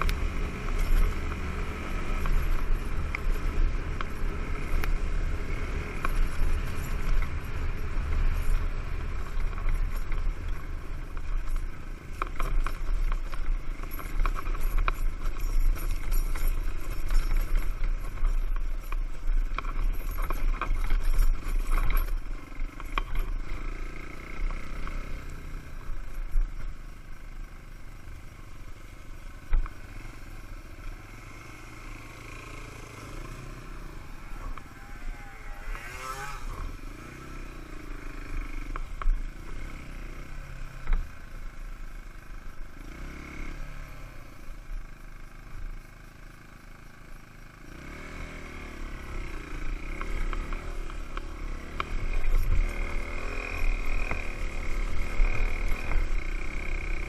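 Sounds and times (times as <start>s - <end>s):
motorcycle engine under load: 0.0s - 57.0s.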